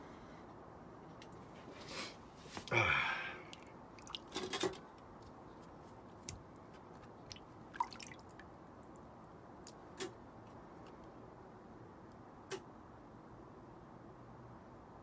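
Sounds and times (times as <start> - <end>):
water splashing in metal bowl: 3.4 - 4.9, 7.2 - 8.5.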